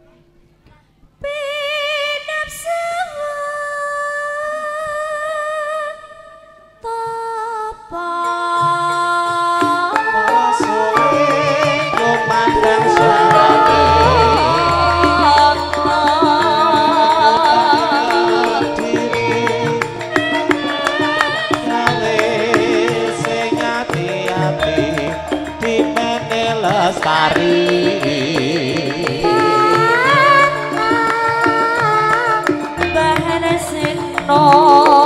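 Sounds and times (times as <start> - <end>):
woman singing: 0.7 - 35.0
gamelan ensemble playing: 10.0 - 35.0
deep gong: 12.5 - 18.6.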